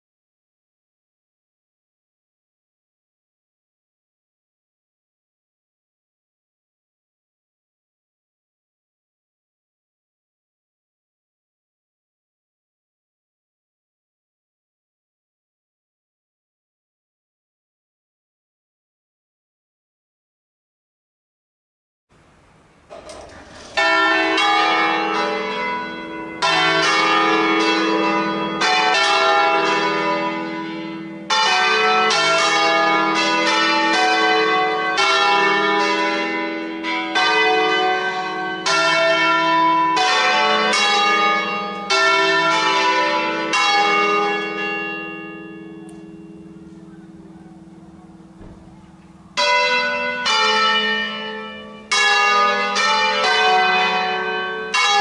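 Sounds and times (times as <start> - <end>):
church bells ringing: 23.1 - 55.0.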